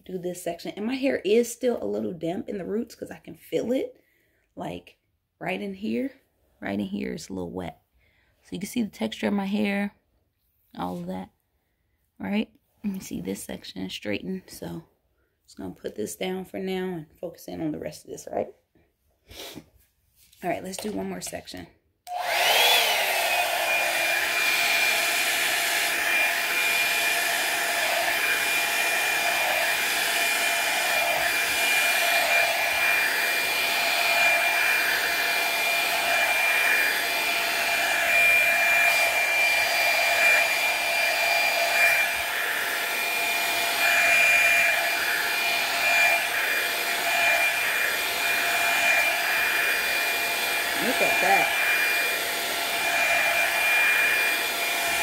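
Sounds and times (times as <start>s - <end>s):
hair dryer whine and air: 22.1s - 55.0s.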